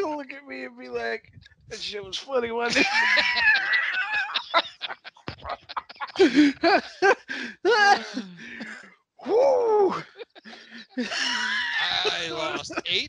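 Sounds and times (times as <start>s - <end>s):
man laughing hard: 2.7s - 8.0s, 9.6s - 12.9s.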